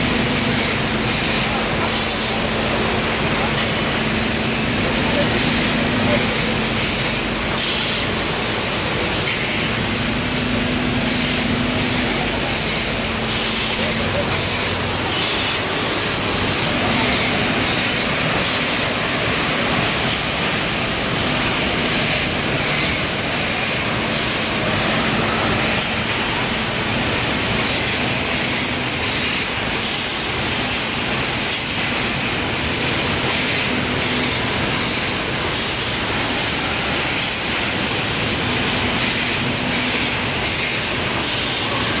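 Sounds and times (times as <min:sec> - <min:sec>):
industrial vacuum cleaner running: 0:00.0 - 0:42.0
machinery noise: 0:00.0 - 0:42.0.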